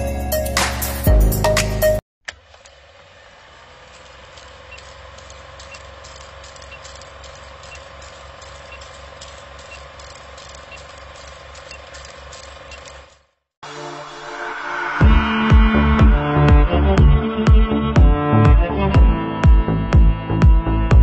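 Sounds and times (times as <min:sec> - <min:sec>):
engine idling: 0:02.3 - 0:14.3.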